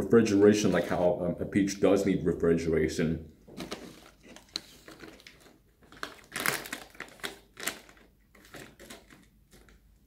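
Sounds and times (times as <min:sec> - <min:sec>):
foil pouch crinkling: 0:03.6 - 0:09.8.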